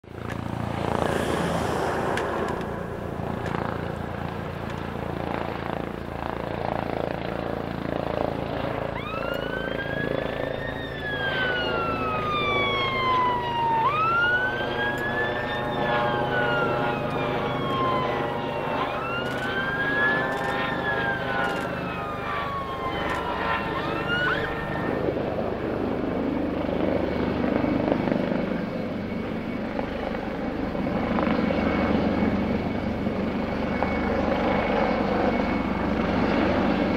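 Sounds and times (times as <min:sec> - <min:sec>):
vehicle rumble: 0:00.0 - 0:05.5
emergency siren wailing: 0:00.0 - 0:05.8, 0:07.8 - 0:26.8.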